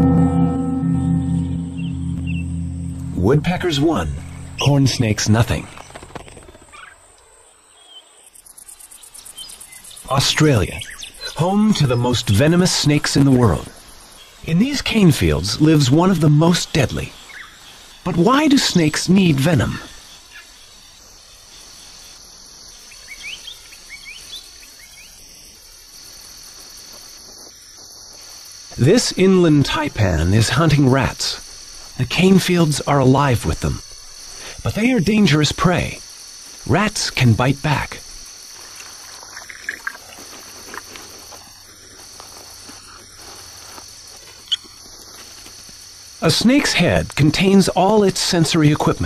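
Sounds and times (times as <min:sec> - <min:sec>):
short rising chirps: 0:00.0 - 0:03.3
crickets chirping: 0:00.0 - 0:49.0.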